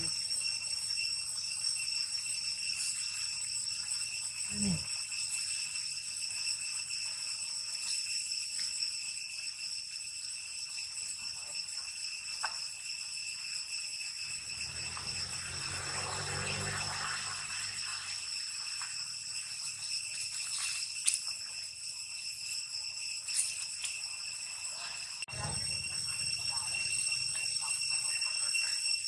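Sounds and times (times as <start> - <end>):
insects droning: 0.0 - 29.0.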